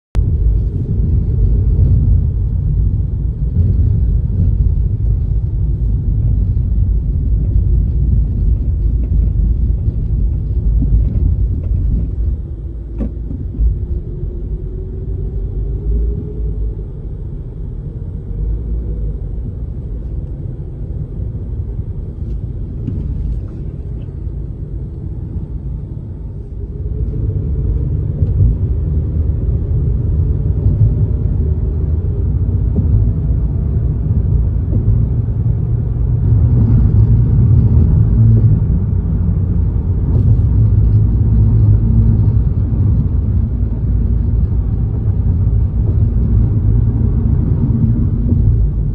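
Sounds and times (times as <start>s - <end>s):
car engine and tyre rumble: 0.0s - 48.9s.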